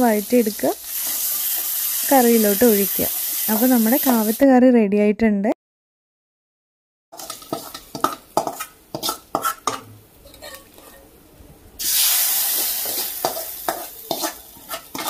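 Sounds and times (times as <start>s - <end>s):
loud oil sizzle: 0.0s - 4.4s, 7.2s - 9.4s, 11.8s - 15.0s
metal spoon scraping a pot: 7.2s - 11.1s, 12.6s - 15.0s.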